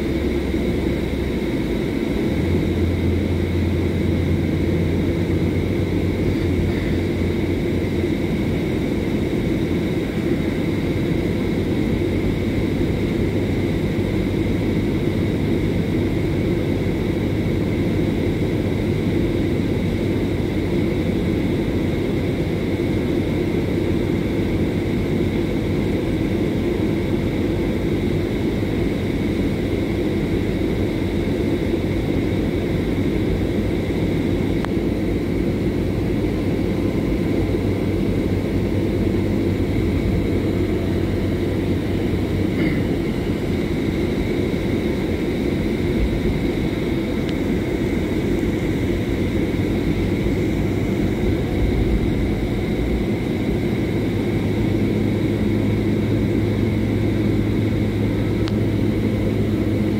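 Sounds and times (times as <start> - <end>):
bus engine and road rumble: 0.0 - 59.9
high whine: 30.3 - 59.9.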